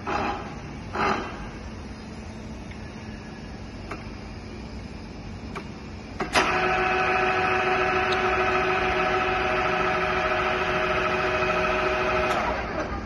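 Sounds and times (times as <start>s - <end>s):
electric drive and gearing whine: 0.0s - 13.0s.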